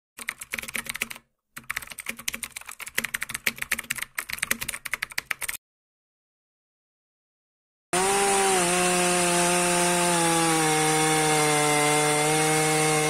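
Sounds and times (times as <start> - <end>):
keyboard typing clicks: 0.2 - 5.6.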